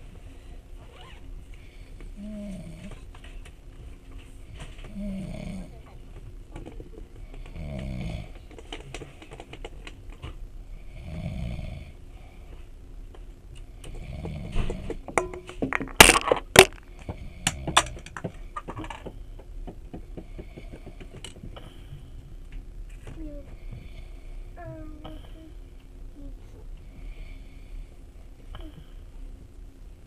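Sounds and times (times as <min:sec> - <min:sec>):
person snoring: 0:04.9 - 0:05.8, 0:07.4 - 0:08.4, 0:10.8 - 0:12.0, 0:13.9 - 0:14.8.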